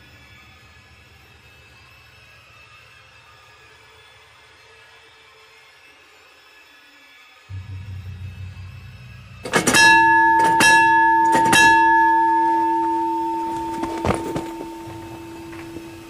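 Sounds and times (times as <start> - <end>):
deep bell ringing: 7.5 - 16.0
low drone: 7.5 - 16.0.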